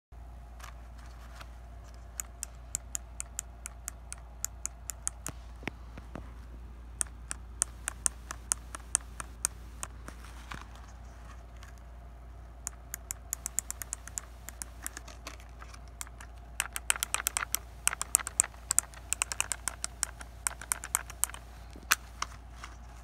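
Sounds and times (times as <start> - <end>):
faint steady hum: 0.2 - 23.0
toy motor clicking: 2.2 - 5.3, 7.0 - 10.0, 12.7 - 22.4.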